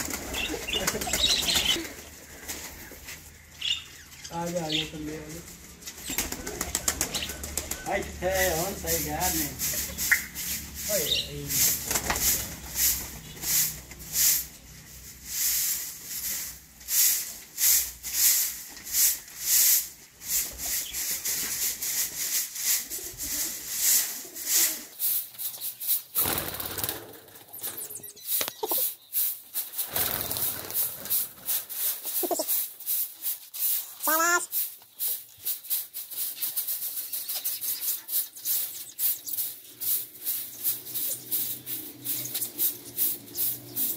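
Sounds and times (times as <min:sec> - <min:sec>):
broom sweeping dusty floor: 0:07.9 - 0:26.1, 0:28.2 - 0:43.9.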